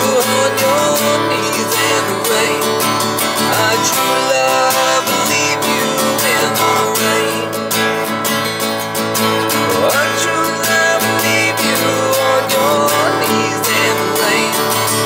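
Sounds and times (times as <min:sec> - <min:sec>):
acoustic guitar strumming: 0:00.0 - 0:15.0.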